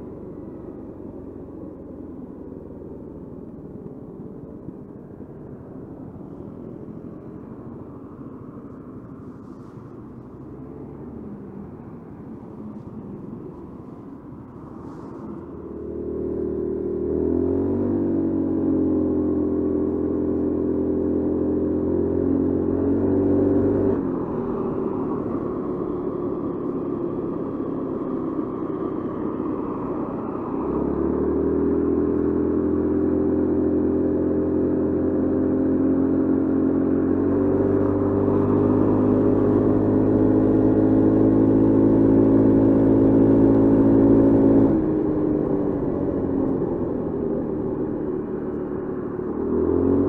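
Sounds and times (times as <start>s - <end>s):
scooter engine running: 14.7s - 50.0s.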